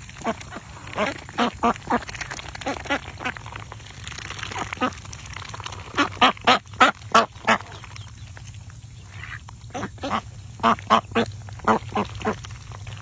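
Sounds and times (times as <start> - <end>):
ducks quacking: 0.2 - 3.4, 4.4 - 5.1, 5.8 - 7.9, 9.0 - 12.5.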